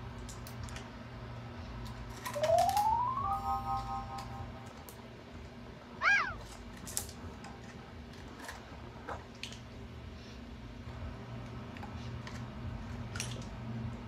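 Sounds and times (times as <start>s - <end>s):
faint clicks of dog eating: 0.2s - 0.9s, 13.1s - 13.6s
dog whining: 6.0s - 6.5s.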